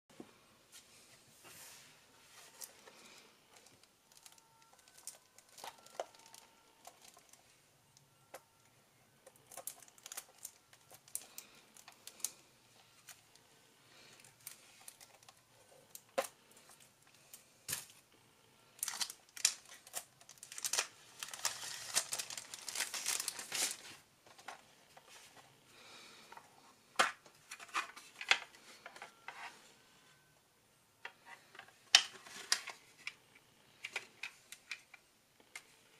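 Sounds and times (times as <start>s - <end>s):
plastic shrink-wrap crinkling: 2.5s - 7.4s, 9.3s - 18.0s, 18.8s - 24.5s.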